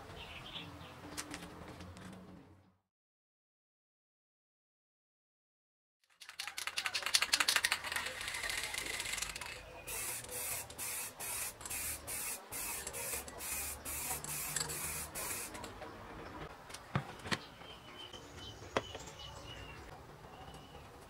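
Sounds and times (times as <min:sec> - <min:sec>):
aerosol can spraying bursts: 0:09.9 - 0:15.6.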